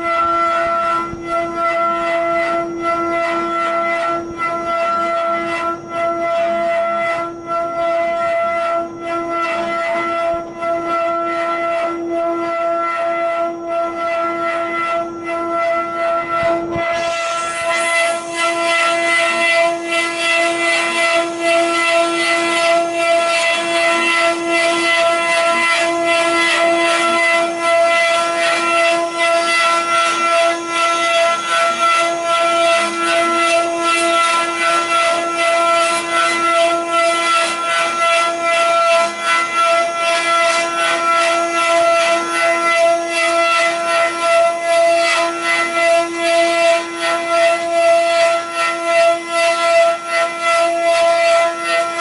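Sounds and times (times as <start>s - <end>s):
router spindles whining: 0.0s - 52.0s
pulsing wood cutting hiss: 16.8s - 22.3s.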